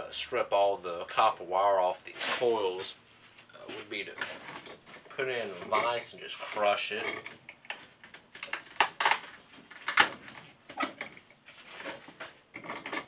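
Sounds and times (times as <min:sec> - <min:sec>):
coil cracking in a vise: 0:07.2 - 0:13.0.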